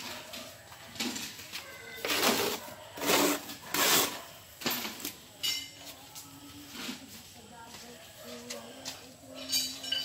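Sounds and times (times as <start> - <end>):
plastering tool scraping plaster: 2.1 - 4.3
metallic clink: 5.4 - 5.8, 9.4 - 10.0.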